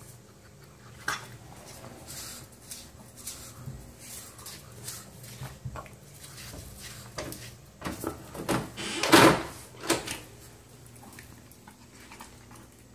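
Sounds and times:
door scraping: 8.4 - 10.1.

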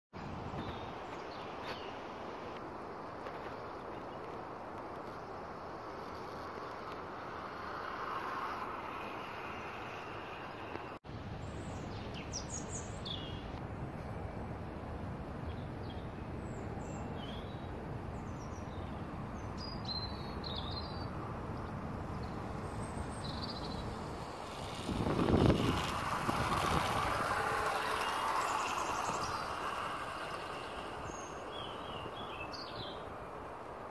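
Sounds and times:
outdoor background noise: 0.1 - 33.9
model train running on rails: 5.8 - 11.0, 21.2 - 33.9
birds chirping: 15.5 - 33.2.

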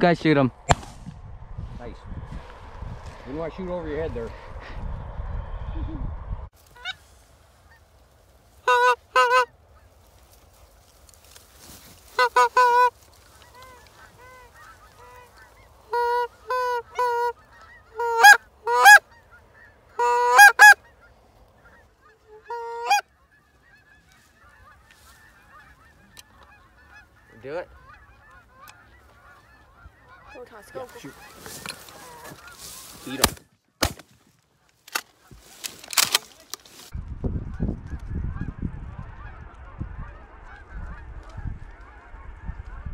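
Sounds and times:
geese honking: 6.6 - 33.2, 37.9 - 42.9.

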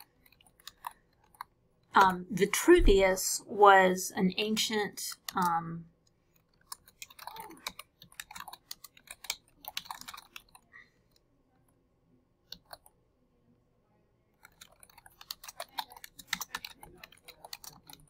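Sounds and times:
typing on computer keyboard: 0.0 - 1.5, 6.5 - 10.7, 12.5 - 12.9, 14.4 - 18.0.

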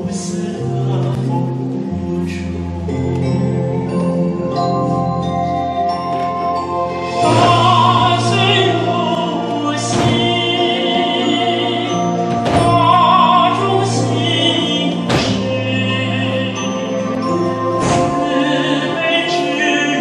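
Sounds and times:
singing with orchestra: 0.0 - 20.0
heavy percussive hits: 7.0 - 10.6, 15.0 - 16.0, 17.6 - 18.7.

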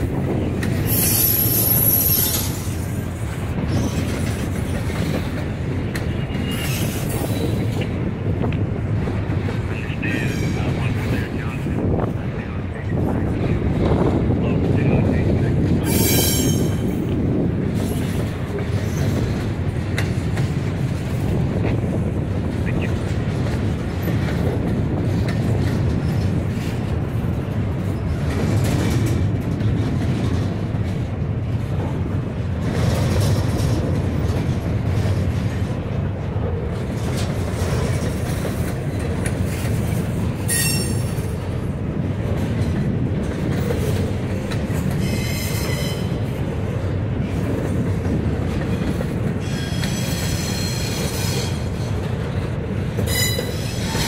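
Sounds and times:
train wheels rumbling on rail: 0.0 - 54.0
high-pitched wheel squeals: 0.9 - 2.5, 15.9 - 16.8, 40.5 - 41.1, 45.0 - 46.1, 53.1 - 54.0.

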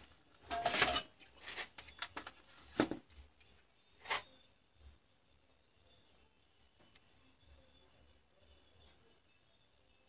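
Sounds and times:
wires rustling and clicking: 0.0 - 4.6.

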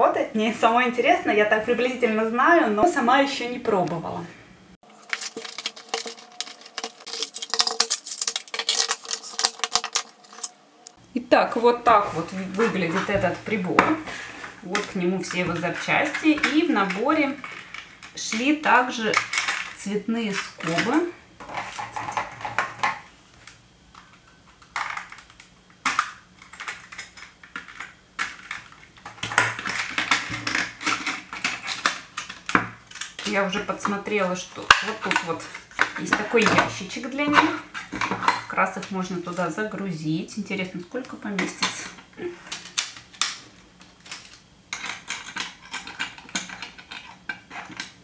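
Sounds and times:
plastic rustling: 4.8 - 11.0.

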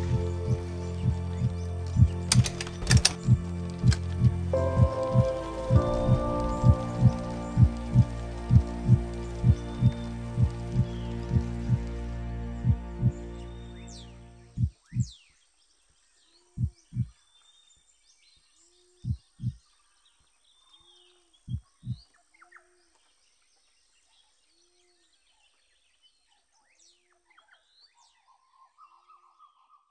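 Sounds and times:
low heartbeat-like thumps: 0.0 - 13.4, 14.5 - 15.2, 16.6 - 17.2, 19.0 - 19.6, 21.5 - 22.1
faint birdsong chirps: 0.0 - 29.9.

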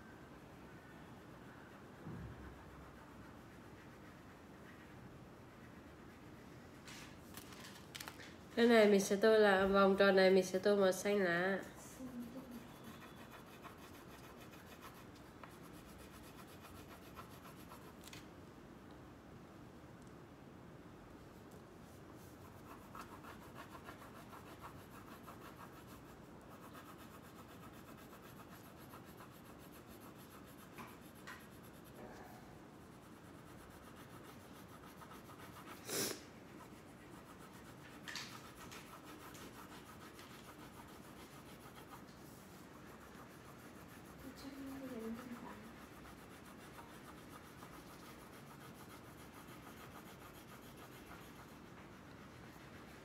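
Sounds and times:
crayon scribbling on paper: 12.1 - 18.1, 22.2 - 32.0, 32.8 - 53.0.

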